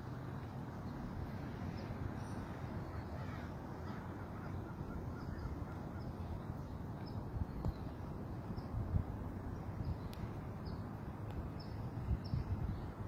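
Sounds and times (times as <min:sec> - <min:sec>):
distant surf: 0:00.0 - 0:13.0
wind: 0:00.0 - 0:13.0.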